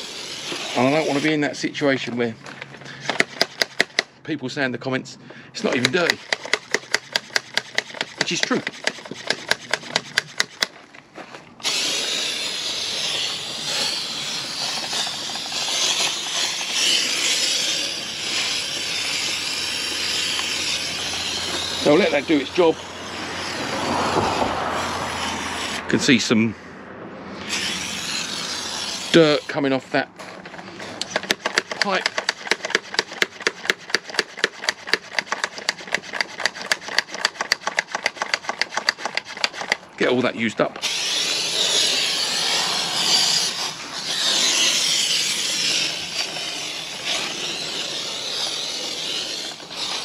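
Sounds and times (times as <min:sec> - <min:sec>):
foam sprayer hissing: 0:00.0 - 0:01.8, 0:11.6 - 0:25.9, 0:27.4 - 0:29.7, 0:30.9 - 0:39.8, 0:40.8 - 0:50.0
spray bottle trigger clicking: 0:31.0 - 0:39.8.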